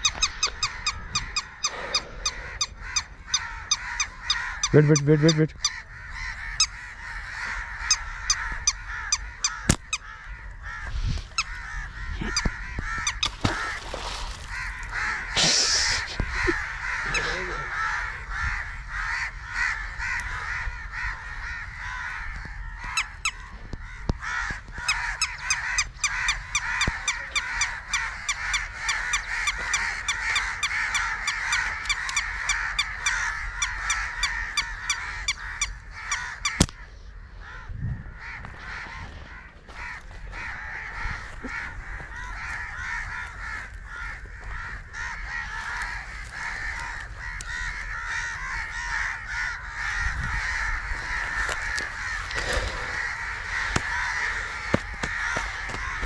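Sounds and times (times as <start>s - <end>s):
chorus of birds calling: 0.0s - 56.0s
fast run of sharp bird calls: 37.5s - 56.0s.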